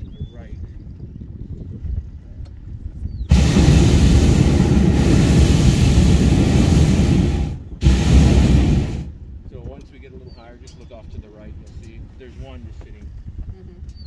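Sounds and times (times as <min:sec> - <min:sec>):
propane burner blasting: 0:03.3 - 0:09.6.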